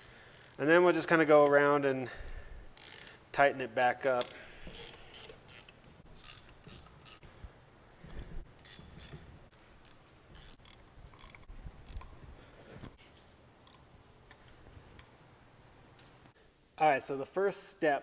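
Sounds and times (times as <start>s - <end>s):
hand ratchet clicking: 0.0s - 0.6s, 2.7s - 3.1s, 4.2s - 7.2s, 8.6s - 12.1s.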